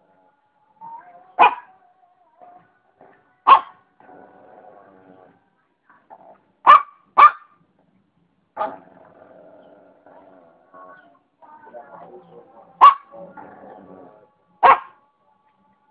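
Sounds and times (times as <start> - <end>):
dog barking: 1.4 - 1.8, 3.4 - 3.8, 6.6 - 7.6, 8.6 - 8.8, 12.8 - 13.3, 14.6 - 15.0.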